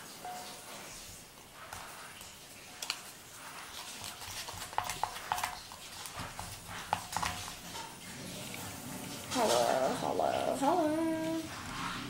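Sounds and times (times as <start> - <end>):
slime stirred with wet clicks: 1.6 - 8.6.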